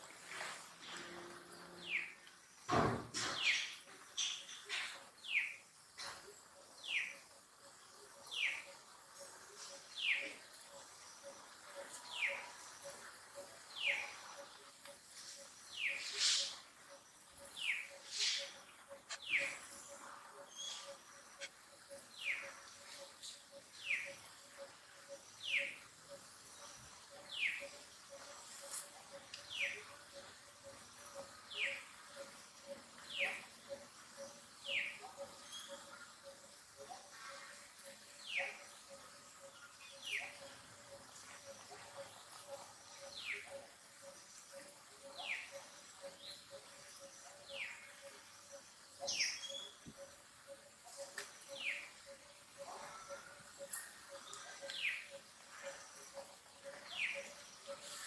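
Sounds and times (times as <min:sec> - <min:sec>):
brief thump: 0:02.7 - 0:03.6
faint pulsing drone: 0:16.5 - 0:58.0.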